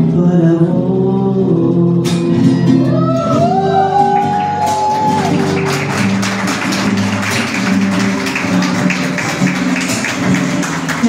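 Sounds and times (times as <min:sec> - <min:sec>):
man singing: 0:00.0 - 0:04.0
guitar strumming: 0:00.0 - 0:11.0.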